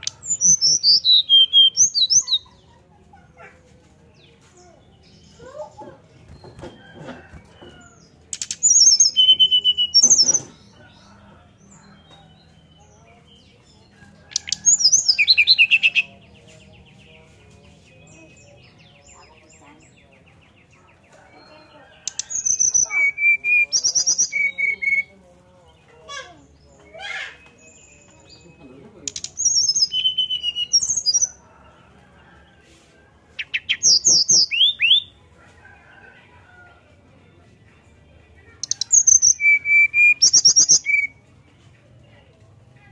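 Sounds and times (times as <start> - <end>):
bird whistling song: 0.0 - 2.4, 8.5 - 10.4, 22.1 - 25.1, 29.4 - 31.1, 38.6 - 41.1.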